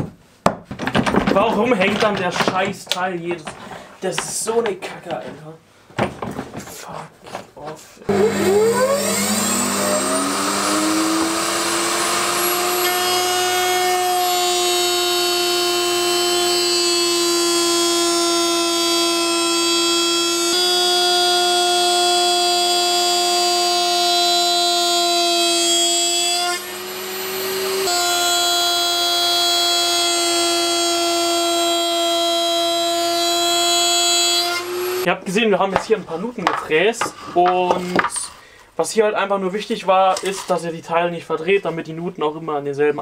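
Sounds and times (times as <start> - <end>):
router whining: 8.1 - 35.1.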